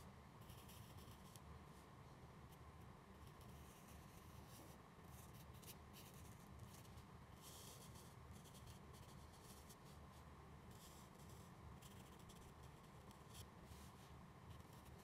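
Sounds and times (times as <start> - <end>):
felt-tip marker scratching on paper: 3.2 - 10.0, 10.7 - 15.0.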